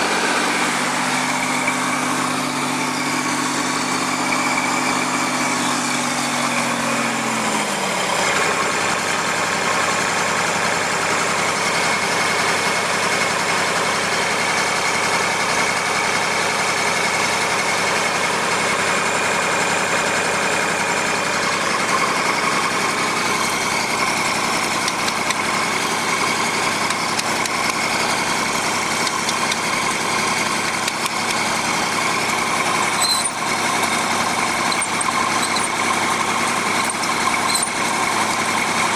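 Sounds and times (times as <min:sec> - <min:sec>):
diesel generator engine running: 0:00.0 - 0:38.9.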